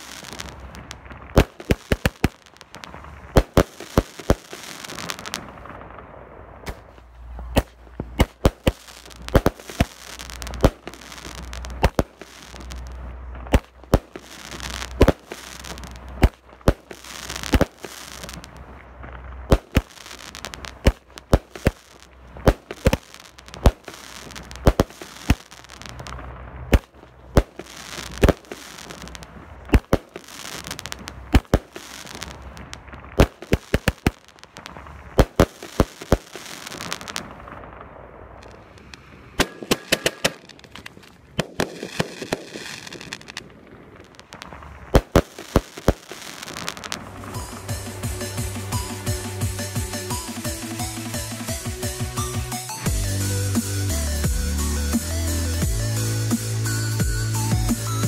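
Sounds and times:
firework bangs: 0:00.0 - 0:53.2
firework crackling: 0:00.0 - 0:58.0
low rumble: 0:47.0 - 0:50.2.

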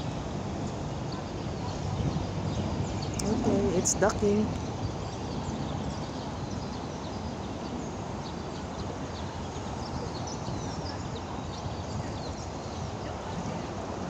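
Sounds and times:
low traffic rumble: 0:00.0 - 0:14.0.

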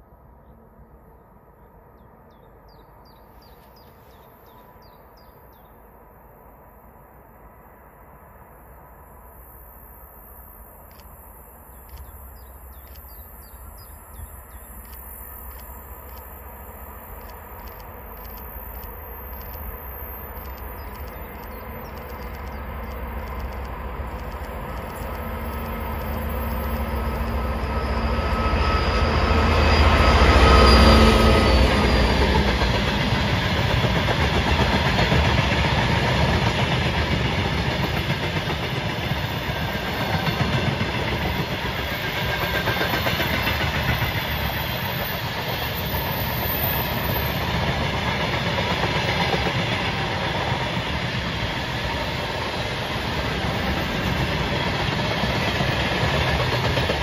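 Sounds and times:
diesel locomotive engine drone: 0:00.0 - 0:57.0
train wheels clattering on rails: 0:11.8 - 0:57.0.

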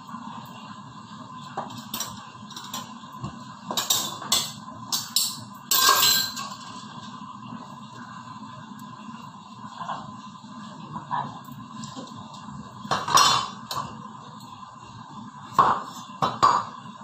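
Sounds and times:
dishes clinking: 0:03.7 - 0:06.8, 0:12.9 - 0:13.9.

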